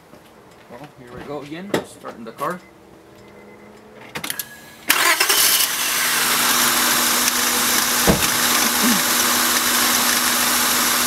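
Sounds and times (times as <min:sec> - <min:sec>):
car engine starting and running: 0:03.0 - 0:11.0.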